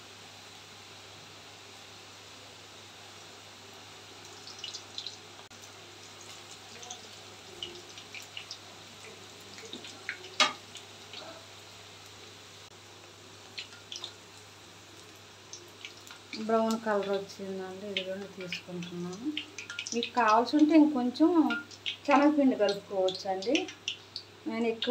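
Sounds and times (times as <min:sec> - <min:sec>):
food deep-frying in oil: 0:00.0 - 0:24.9
oil crackling and popping: 0:04.2 - 0:11.4, 0:13.0 - 0:24.9.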